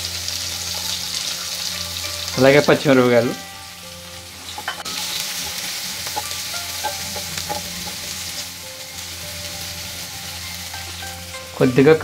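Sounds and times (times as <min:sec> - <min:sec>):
onions sizzling in hot oil: 0:00.0 - 0:12.0
spatula scraping and tapping pan: 0:04.4 - 0:08.5.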